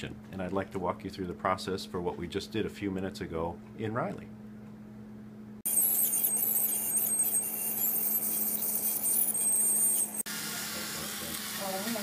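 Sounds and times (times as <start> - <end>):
ultrasonic dental scaler whine: 5.6 - 12.0.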